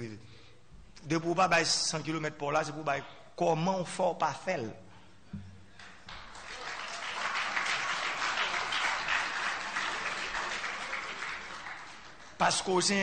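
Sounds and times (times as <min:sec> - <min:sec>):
audience applauding: 0:05.8 - 0:13.0.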